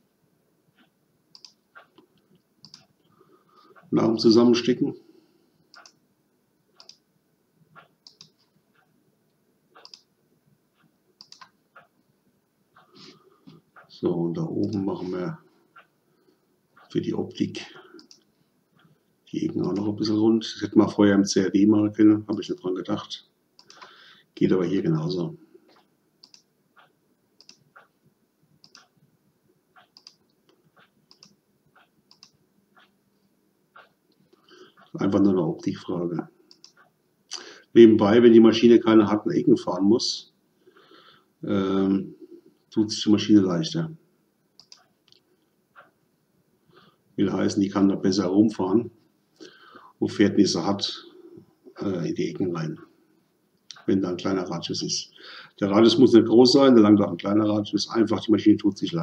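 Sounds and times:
computer mouse clicks: 0.8 - 2.9, 5.7 - 6.0, 6.8 - 7.0, 7.8 - 8.9, 9.8 - 10.1, 10.8 - 11.9, 18.0 - 18.9, 23.6 - 23.9, 25.7 - 27.9, 28.6 - 29.0, 29.8 - 32.9, 36.5 - 36.9, 44.6 - 45.2.

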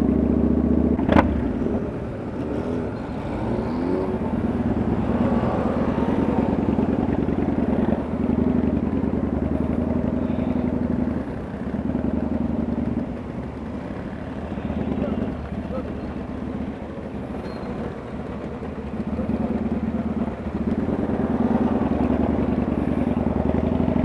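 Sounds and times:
motorcycle engine running: 0.0 - 24.0.

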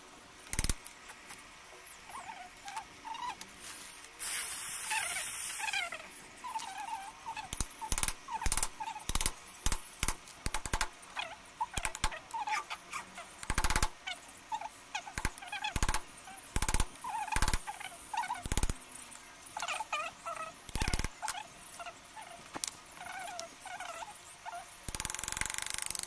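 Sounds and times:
high squeaky chirps: 4.8 - 9.2, 19.5 - 22.4.

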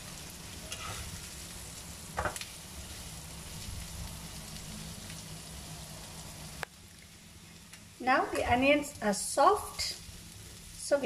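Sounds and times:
food sizzling in oil: 0.0 - 11.0
spatula scraping pan: 0.6 - 1.1.

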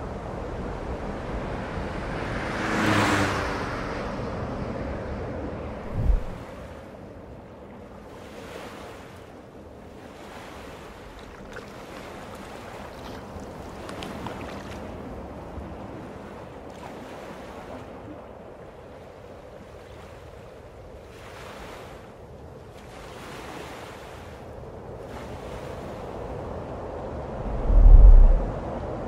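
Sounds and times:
rushing wind: 0.0 - 7.4, 25.6 - 29.0.

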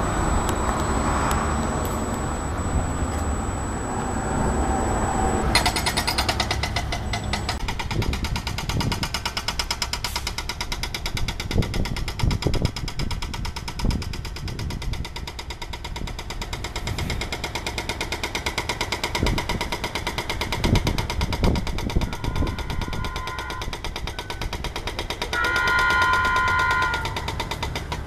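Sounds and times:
train rattling clatter: 5.5 - 28.0
train horn chord: 25.4 - 27.0.

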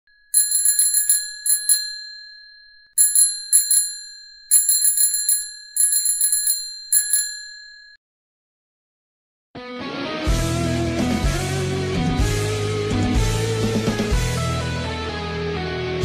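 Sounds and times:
bicycle bell ringing: 0.1 - 8.0.

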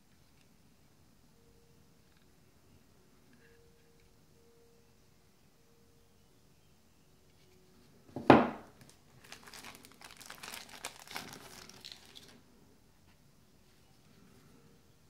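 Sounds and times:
thin plastic crinkling: 8.8 - 12.4.

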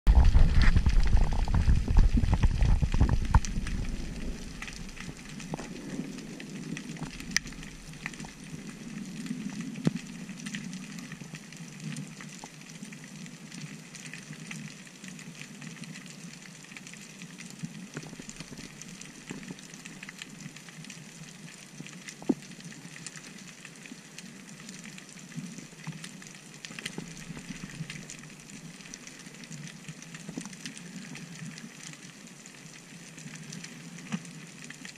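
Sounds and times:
loud low underwater rumble: 0.1 - 8.7
underwater crackle: 0.1 - 34.9.

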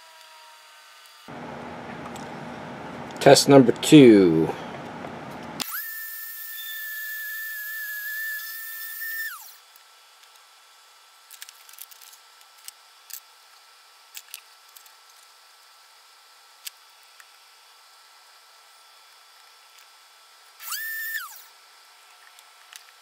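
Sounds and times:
drill press whining: 5.6 - 9.6, 20.6 - 21.5.

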